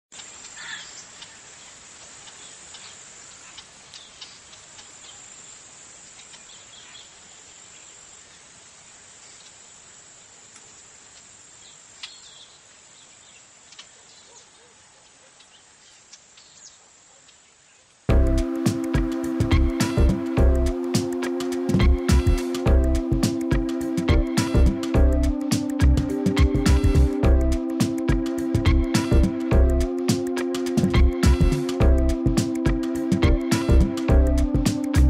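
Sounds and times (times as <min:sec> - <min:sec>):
high insect drone: 0:00.2 - 0:14.0
loud music with a beat: 0:18.1 - 0:35.0.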